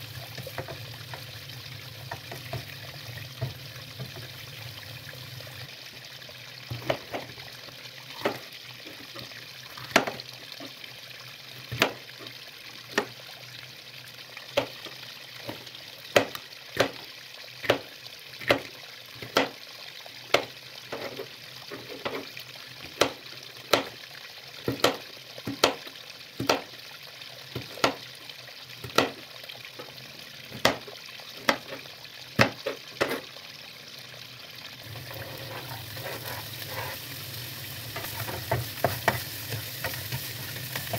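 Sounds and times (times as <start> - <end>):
steady hiss: 34.8 - 40.9.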